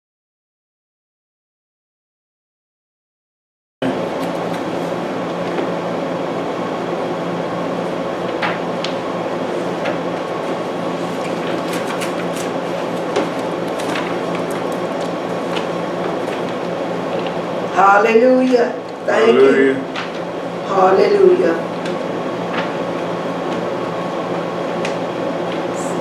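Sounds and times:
machinery hum and hiss: 3.8 - 26.0
pages turning: 4.0 - 5.7, 9.8 - 17.4.

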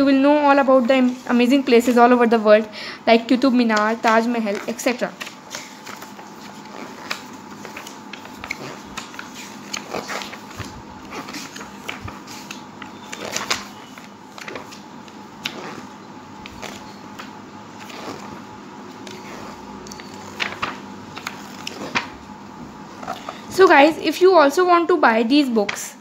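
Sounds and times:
glossy paper pages turning: 3.8 - 22.2, 22.9 - 23.8.

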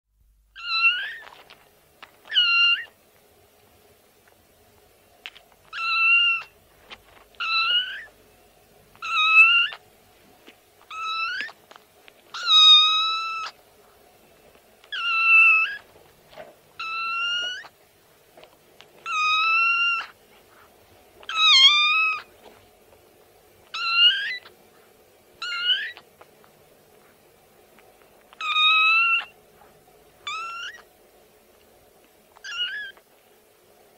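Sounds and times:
faint steady hum: 0.1 - 33.9
kitten meowing: 0.6 - 1.5, 2.3 - 3.0, 5.7 - 6.5, 7.4 - 8.1, 9.0 - 9.8, 10.9 - 11.6, 12.3 - 13.6, 14.9 - 15.8, 16.8 - 17.7, 19.0 - 20.2, 21.2 - 22.3, 23.7 - 24.5, 25.4 - 26.0, 28.3 - 29.4, 30.2 - 30.9, 32.4 - 33.0.

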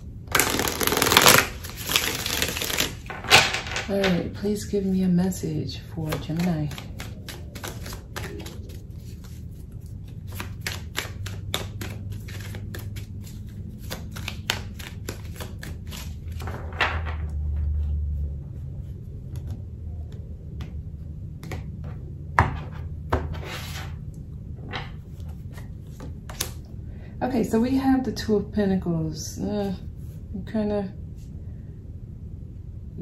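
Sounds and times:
cards being shuffled: 0.3 - 4.2, 6.0 - 16.7, 24.8 - 26.7.

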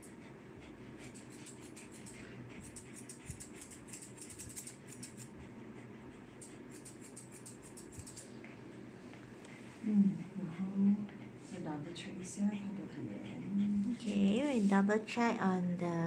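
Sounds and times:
scissors snipping: 1.1 - 5.3, 6.4 - 8.3.

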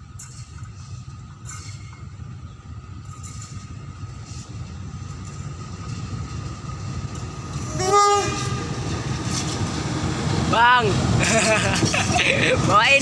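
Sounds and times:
locomotive engine rumble: 0.0 - 13.0
train horn blast: 7.6 - 8.8.

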